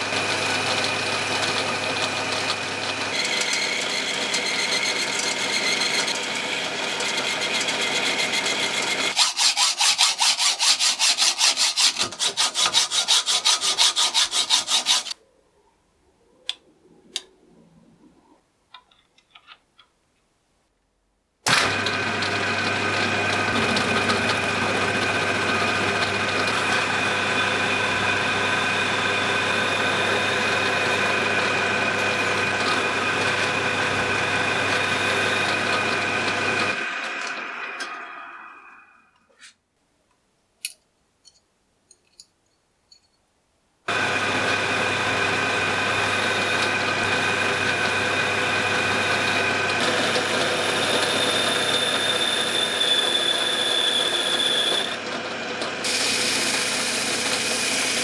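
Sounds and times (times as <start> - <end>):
lathe facing metal bar: 0.0 - 15.2, 21.5 - 38.8, 43.9 - 58.0
metal being sawn: 0.0 - 15.2, 22.9 - 39.6
metal lathe drilling: 0.0 - 15.2, 21.5 - 38.8, 43.9 - 58.0.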